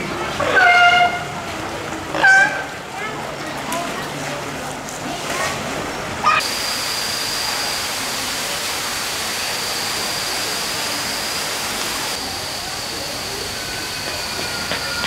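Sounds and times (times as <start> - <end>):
thin high tone: 6.4 - 15.0
water rushing hiss: 6.4 - 15.0.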